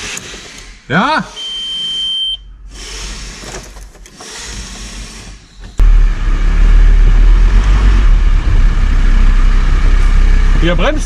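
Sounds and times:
van engine starting and running: 2.6s - 11.0s.

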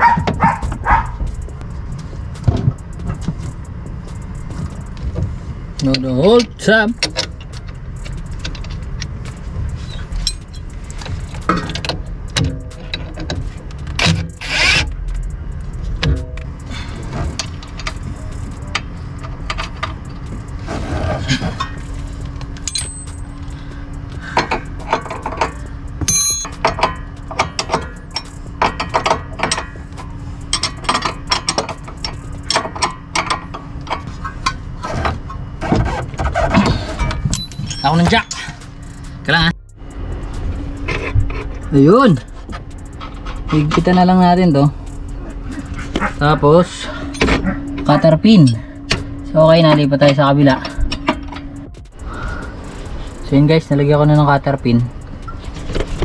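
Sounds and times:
steady low hum: 0.0s - 56.0s
ratcheting wrench clicking: 5.8s - 20.5s, 21.6s - 34.6s, 39.8s - 56.0s
metallic clinks of hand tools: 22.6s - 23.6s, 24.4s - 33.5s, 36.9s - 39.2s.

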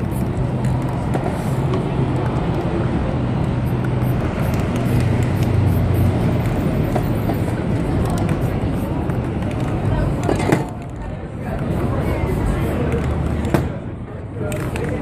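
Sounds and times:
traffic rumble: 0.0s - 15.0s.

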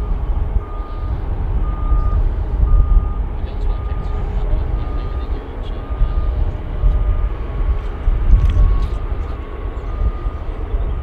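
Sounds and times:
jet engines rumbling: 0.0s - 11.0s
faint beeper: 0.6s - 6.4s.

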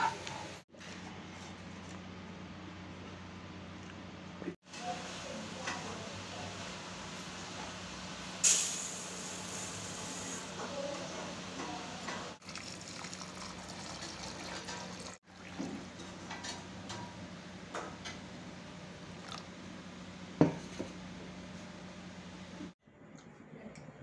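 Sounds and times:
water pouring into a pot: 12.4s - 15.6s.

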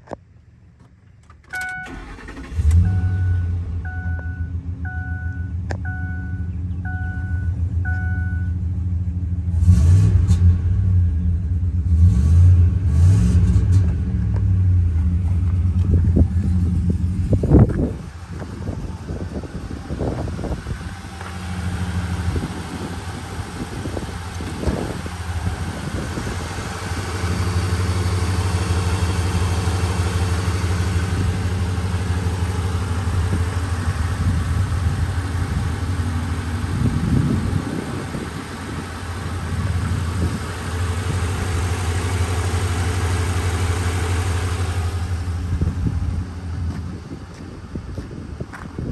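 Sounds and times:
pickup engine idling: 14.2s - 48.6s.

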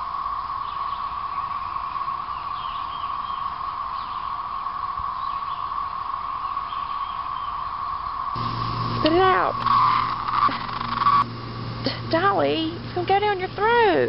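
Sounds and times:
cicadas droning: 0.0s - 14.0s
faint bird chirps: 0.6s - 11.2s.

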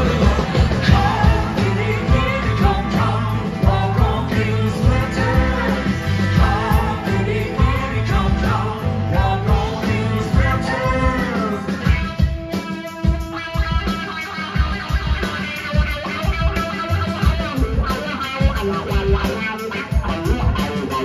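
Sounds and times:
man singing lead vocal: 0.0s - 12.5s
live rock band playing: 0.0s - 21.0s.

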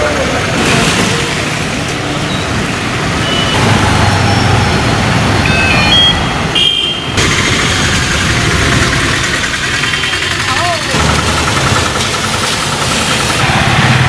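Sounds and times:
short high beeps: 5.4s - 6.3s
vehicle engines running: 7.2s - 14.0s.

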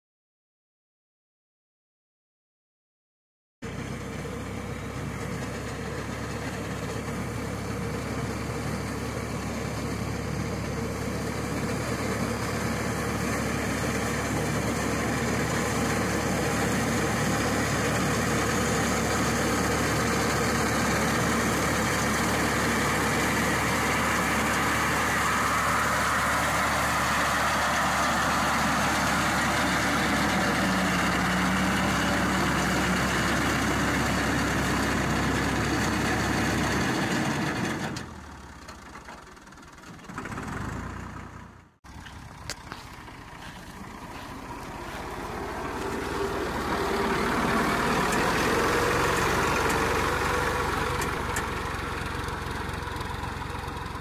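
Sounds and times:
tractor diesel engine running: 3.6s - 54.0s.

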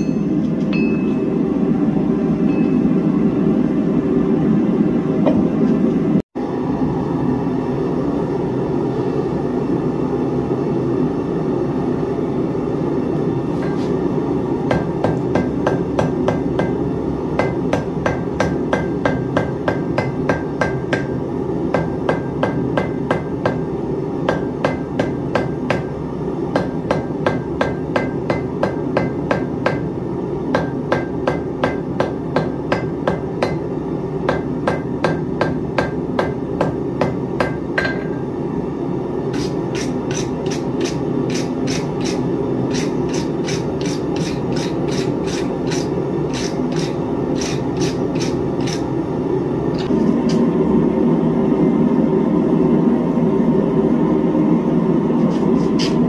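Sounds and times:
hammer striking steel on anvil: 0.0s - 1.4s, 2.5s - 3.0s, 14.7s - 38.3s, 39.3s - 48.9s.

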